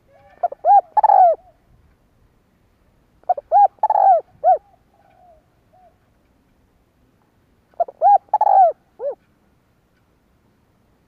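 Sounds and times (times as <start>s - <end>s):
dove cooing: 0.0s - 1.6s, 3.2s - 6.0s, 7.8s - 9.2s.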